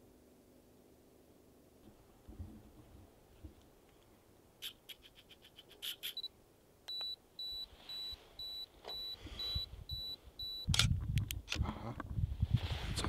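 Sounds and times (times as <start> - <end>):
high electronic alarm beeps: 6.9 - 10.7.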